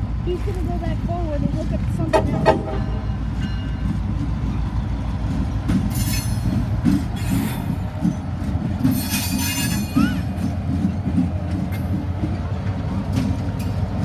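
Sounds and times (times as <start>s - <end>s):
locomotive engines rumbling: 0.0s - 14.0s
high wheel squeal: 5.8s - 8.2s, 8.8s - 10.5s.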